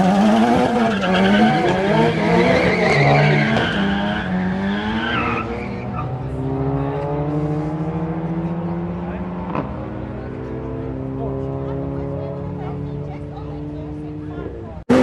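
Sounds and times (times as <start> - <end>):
racing car engines accelerating: 0.0 - 15.0.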